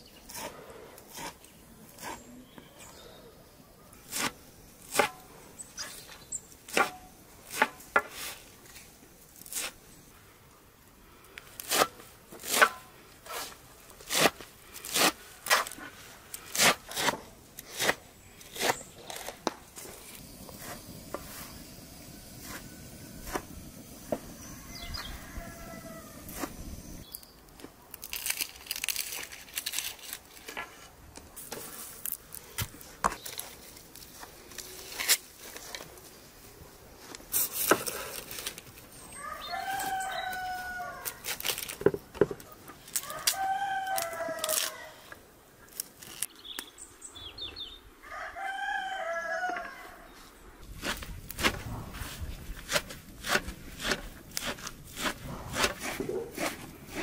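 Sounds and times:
food being cut by hand: 4.0s - 5.2s, 11.6s - 21.4s, 50.8s - 57.0s
rooster crowing: 24.4s - 26.4s, 39.1s - 41.3s, 43.0s - 45.0s, 48.0s - 50.2s
knife chopping greens on metal tray: 52.6s - 57.0s.

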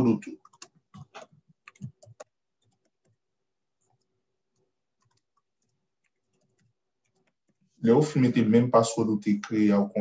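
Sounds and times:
keyboard typing: 0.3s - 7.7s.

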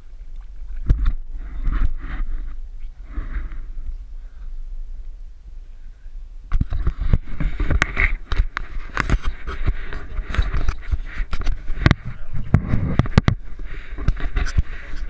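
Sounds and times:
low wind rumble: 0.0s - 15.0s
fingers knocking and scraping camera: 0.8s - 3.7s, 6.5s - 15.0s.

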